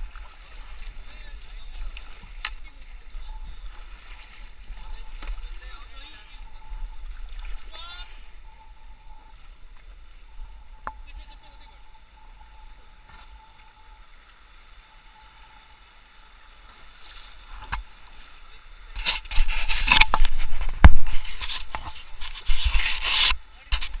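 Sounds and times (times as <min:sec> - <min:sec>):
river water splashing against raft: 0:00.0 - 0:24.0.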